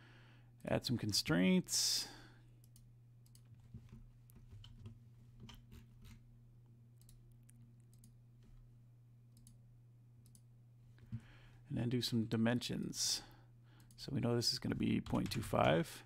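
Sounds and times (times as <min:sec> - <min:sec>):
computer mouse clicks: 0:02.6 - 0:06.2, 0:07.0 - 0:08.2, 0:09.3 - 0:09.6, 0:10.2 - 0:10.4.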